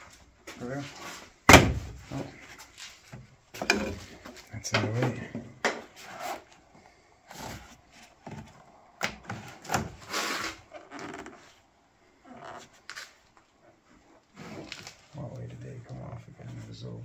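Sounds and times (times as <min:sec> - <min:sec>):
rubber seal rubbing and scraping: 0:09.2 - 0:15.1.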